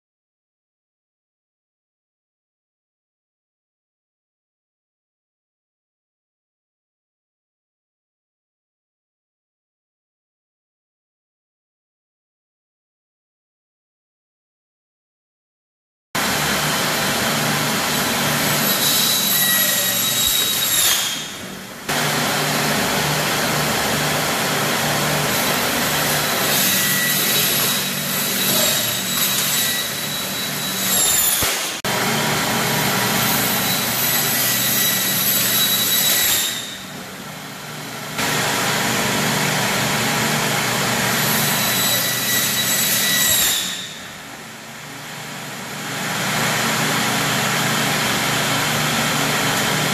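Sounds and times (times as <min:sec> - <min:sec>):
circular saw whining: 0:16.2 - 0:49.9.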